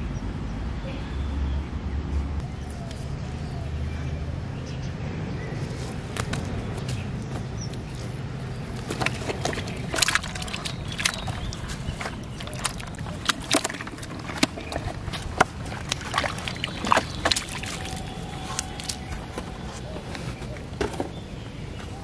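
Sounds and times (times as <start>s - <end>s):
fish splashing in a bucket: 8.6s - 19.4s
water spilling onto mud: 8.9s - 19.1s.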